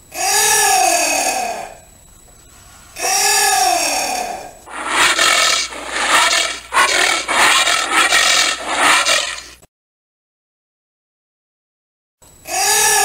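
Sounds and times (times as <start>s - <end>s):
anteater calling: 4.7s - 9.6s.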